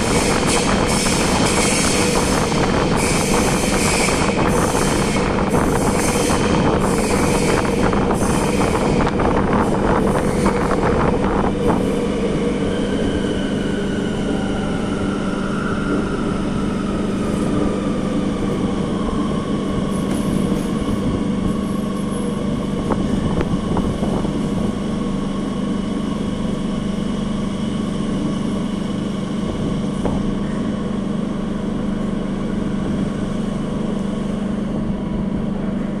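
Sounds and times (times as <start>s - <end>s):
train whine falling in pitch: 0.0s - 26.8s
train running gear rumble: 0.0s - 36.0s.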